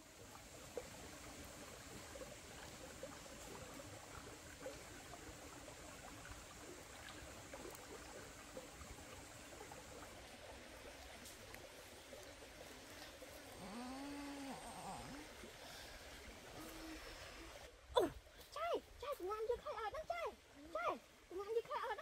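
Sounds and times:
even hiss: 0:12.2 - 0:17.7.

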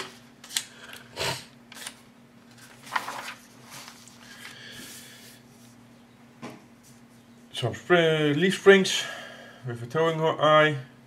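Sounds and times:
paper pages rustling: 0:01.8 - 0:05.0.

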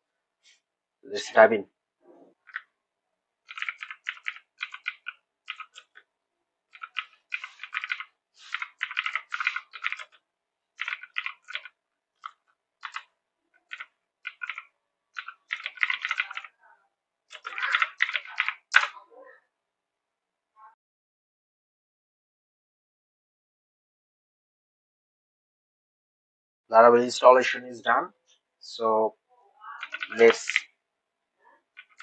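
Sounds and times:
computer keyboard typing: 0:02.4 - 0:02.7, 0:03.4 - 0:06.1, 0:06.7 - 0:10.2, 0:10.8 - 0:16.6, 0:17.3 - 0:19.0, 0:29.7 - 0:30.7, 0:31.7 - 0:32.0.

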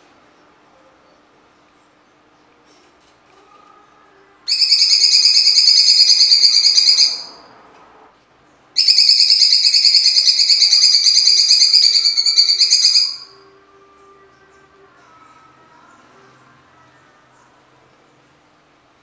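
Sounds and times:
bird rasping song: 0:04.5 - 0:07.3, 0:08.8 - 0:13.4.

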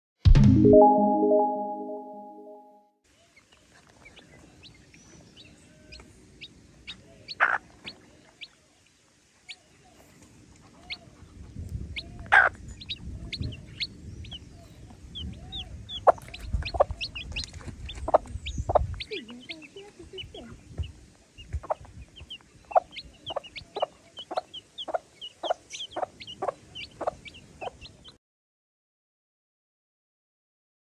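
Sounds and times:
chicks peeping: 0:03.6 - 0:08.5, 0:09.5 - 0:28.2
hen clucking: 0:06.9 - 0:08.0, 0:15.2 - 0:28.1.

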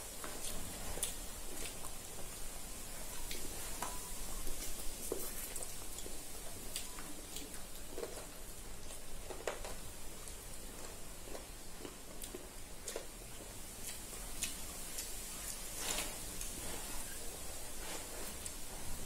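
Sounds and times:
chewing and lip smacks: 0:00.2 - 0:02.4, 0:03.0 - 0:15.8.

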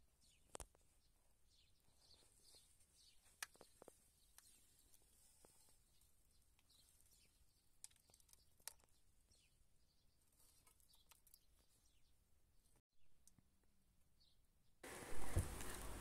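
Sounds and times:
small clicks: 0:07.8 - 0:09.0.

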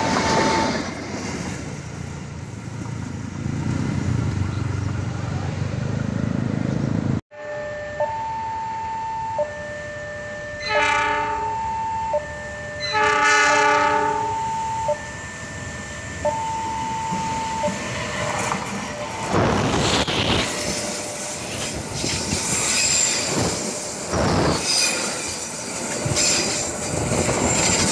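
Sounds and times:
arriving train noise: 0:00.0 - 0:27.9
locomotive horn blasts: 0:07.3 - 0:17.7
level crossing two-tone alarm: 0:07.3 - 0:19.4.

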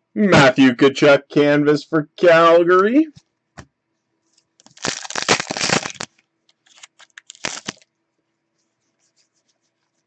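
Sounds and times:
cards clicking and rustling: 0:04.6 - 0:07.8
foil wrapper tearing open: 0:04.6 - 0:07.9.

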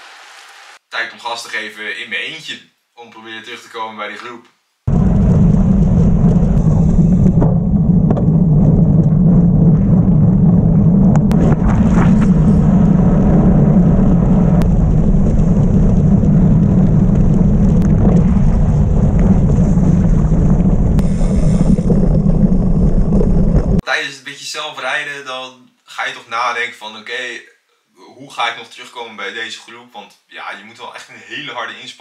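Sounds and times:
bike tyres rushing over road: 0:04.9 - 0:23.8
wind buffeting microphone: 0:04.9 - 0:23.8.

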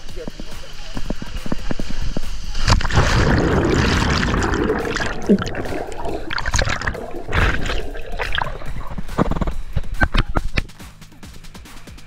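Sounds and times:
splashing: 0:02.4 - 0:09.6
water churning and bubbling: 0:02.4 - 0:09.8.

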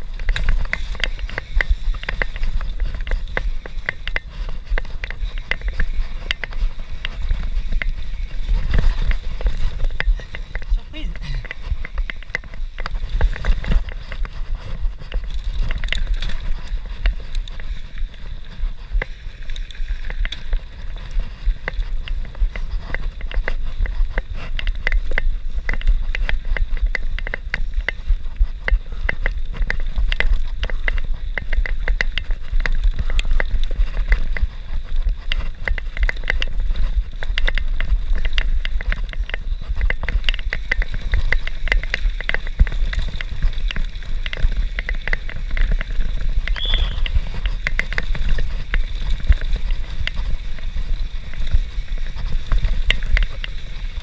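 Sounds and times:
bike clattering and rattling: 0:00.0 - 0:54.0
wind rumble on microphone: 0:00.0 - 0:54.0
tyres crunching on gravel: 0:35.6 - 0:54.0.

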